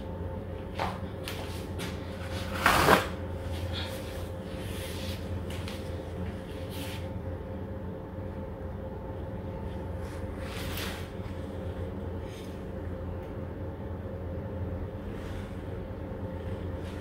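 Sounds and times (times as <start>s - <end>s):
low electrical hum: 0.0s - 17.0s.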